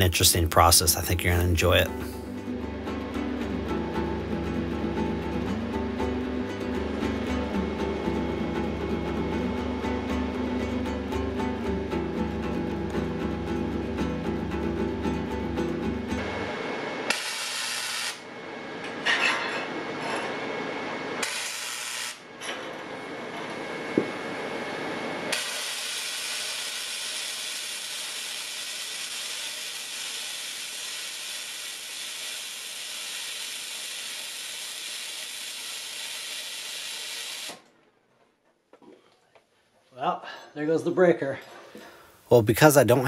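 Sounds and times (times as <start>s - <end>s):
welder arc crackling and hissing: 17.1s - 18.3s, 21.2s - 22.3s, 25.3s - 37.6s.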